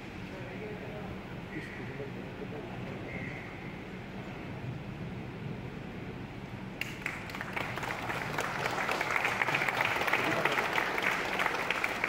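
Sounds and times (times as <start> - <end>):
audience clapping: 6.8 - 12.0.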